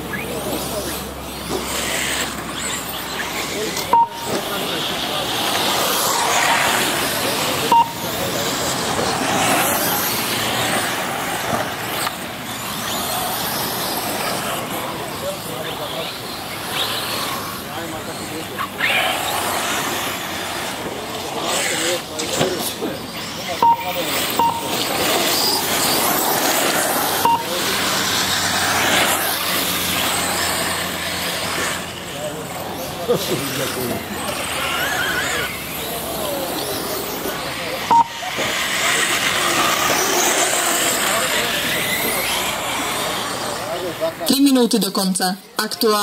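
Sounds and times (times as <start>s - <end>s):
rc car motors and tyres on dirt: 0.0s - 44.6s
short loud beep: 3.9s - 4.4s, 7.7s - 8.0s, 23.6s - 24.7s, 27.2s - 27.5s, 37.9s - 38.2s.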